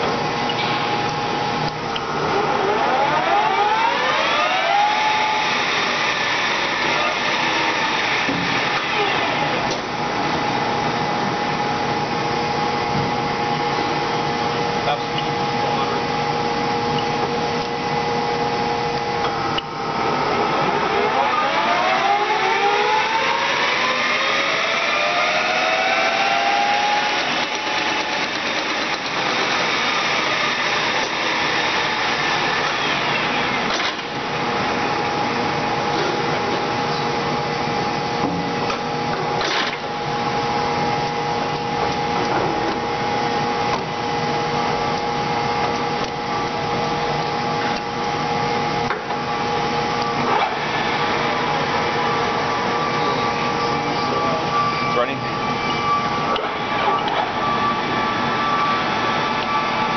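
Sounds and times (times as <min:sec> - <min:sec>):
machine motor hum: 0:00.0 - 0:59.9
lathe headstock whining: 0:19.4 - 0:34.9.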